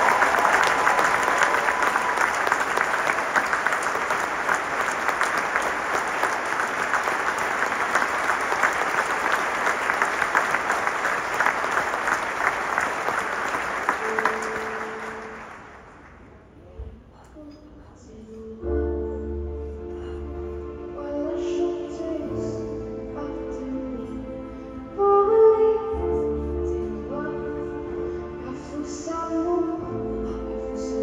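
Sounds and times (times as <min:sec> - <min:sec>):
audience applauding: 0:00.0 - 0:16.3.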